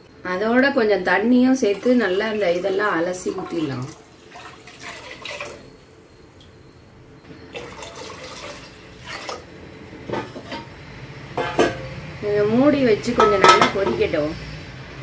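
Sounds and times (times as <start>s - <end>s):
water pouring and splashing: 1.7s - 5.6s, 7.6s - 9.4s.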